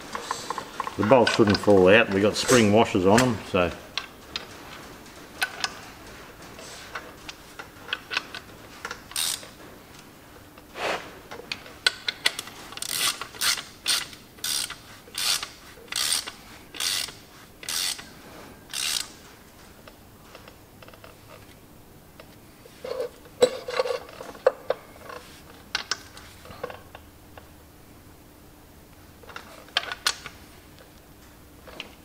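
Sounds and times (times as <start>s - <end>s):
socket ratchet clicking: 9.0s - 9.5s, 11.9s - 18.1s, 18.7s - 19.2s.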